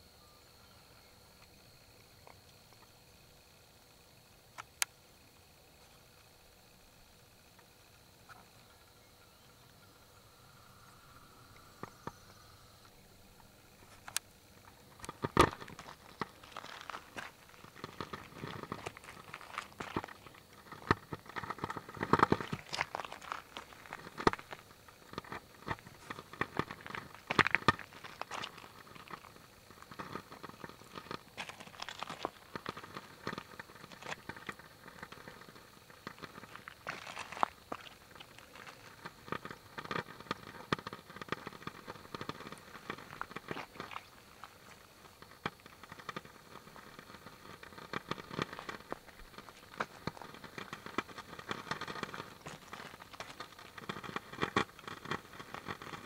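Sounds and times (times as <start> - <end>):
footsteps on gravel: 15.0 - 56.0.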